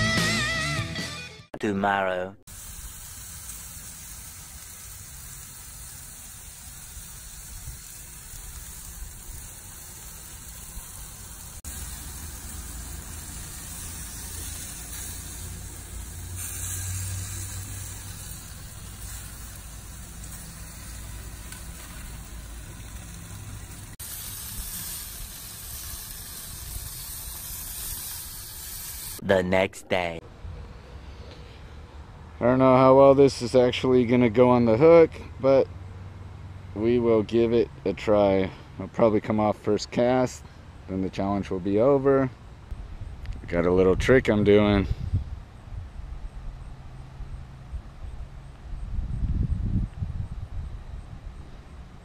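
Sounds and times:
steaks sizzling on a grill: 2.5s - 29.2s.

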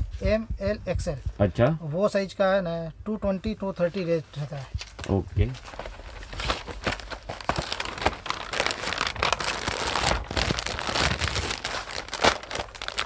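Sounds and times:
paper crinkling and rustling: 3.9s - 13.0s.

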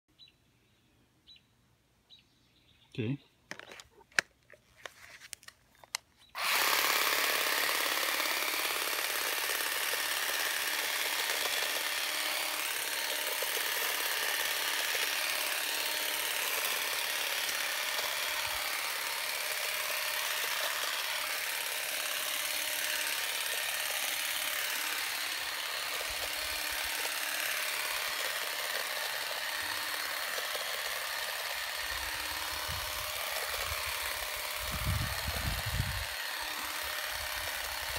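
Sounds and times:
handling clicks: 3.5s - 6.1s
blades cutting leafy twigs: 3.5s - 37.9s
shrub shear buzzing: 3.5s - 37.9s.

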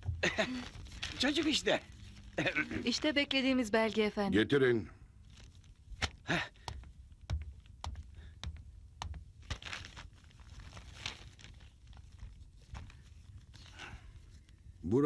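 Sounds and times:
paper rustling: 0.1s - 4.2s, 5.2s - 14.6s
light footsteps: 5.3s - 10.6s
knocks on wood: 6.6s - 9.3s.

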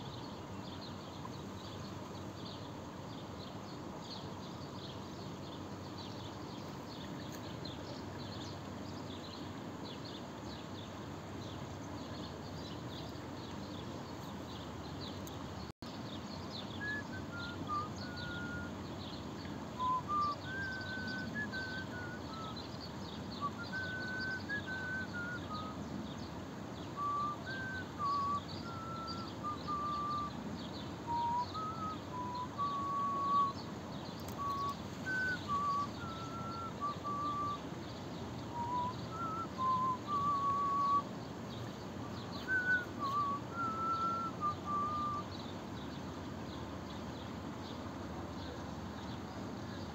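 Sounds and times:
person whistling a tune: 16.8s - 18.7s, 23.5s - 25.8s, 27.0s - 30.3s, 31.1s - 33.6s, 34.4s - 37.6s, 38.5s - 41.0s, 42.4s - 45.3s
faint high chirps: 31.1s - 37.7s.

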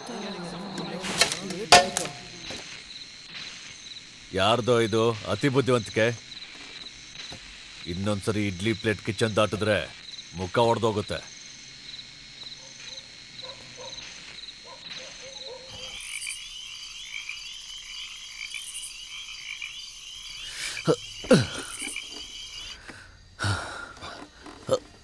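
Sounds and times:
frogs and crickets chirping: 0.0s - 25.0s
downward-sliding frog calls: 12.4s - 23.1s.

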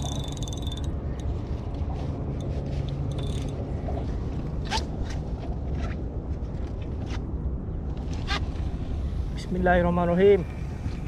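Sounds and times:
spinning reel clicking: 0.0s - 0.9s
steady low rumble: 0.0s - 11.0s.

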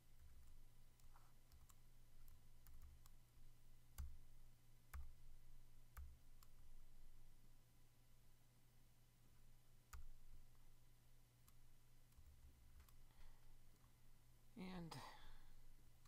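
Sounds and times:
keyboard and mouse clicks: 0.2s - 3.2s, 3.9s - 4.2s, 9.9s - 10.4s, 11.4s - 13.1s.

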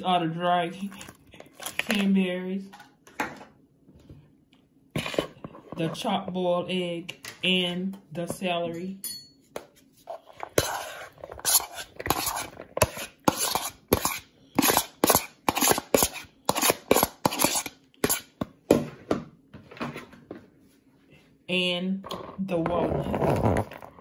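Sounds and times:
knife scraping cutting board: 5.0s - 6.1s, 10.0s - 18.5s.

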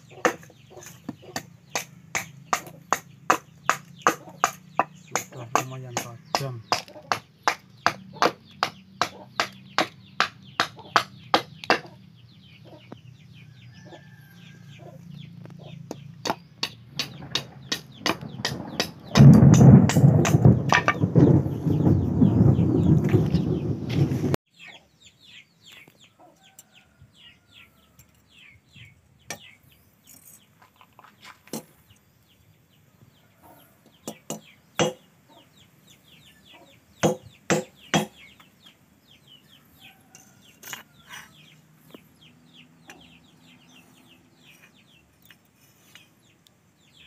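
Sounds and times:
machete striking nail on anvil: 1.4s - 11.9s, 16.3s - 21.0s, 37.0s - 38.2s
loud rumbling noise: 16.9s - 24.4s.

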